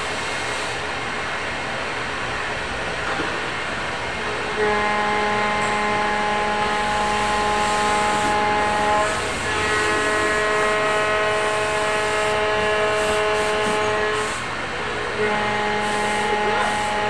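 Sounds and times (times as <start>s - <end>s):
hiss: 0.0s - 1.1s, 6.5s - 14.7s, 15.3s - 17.0s
machinery whine: 0.0s - 17.0s.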